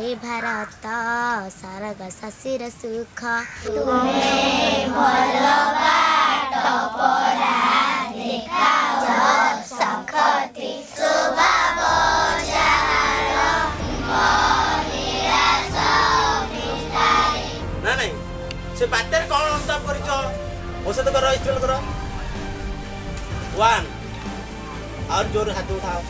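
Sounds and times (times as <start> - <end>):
children singing in unison: 3.6 - 17.8.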